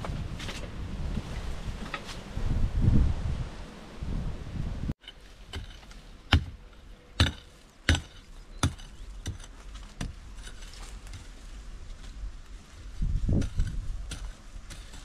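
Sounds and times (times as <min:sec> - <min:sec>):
wind noise: 0:00.0 - 0:05.8, 0:08.7 - 0:15.0
leaves rustling: 0:00.0 - 0:15.0
hand tool chopping into dirt: 0:05.0 - 0:11.3, 0:13.3 - 0:15.0.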